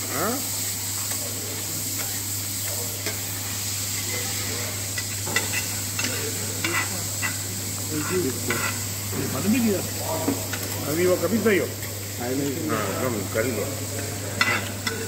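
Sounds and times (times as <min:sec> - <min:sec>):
meat sizzling on a griddle: 0:00.0 - 0:15.0
metal spatulas scraping and clicking: 0:05.0 - 0:07.4, 0:08.0 - 0:08.8, 0:14.4 - 0:15.0.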